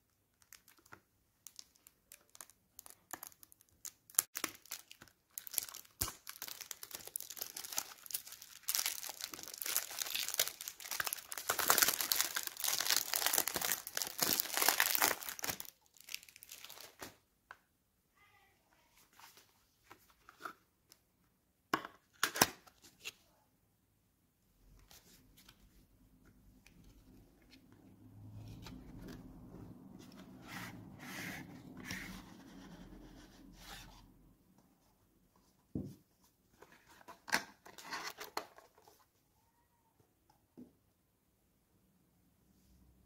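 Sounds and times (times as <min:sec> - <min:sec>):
paper rubbing and sliding: 0:30.0 - 0:34.0.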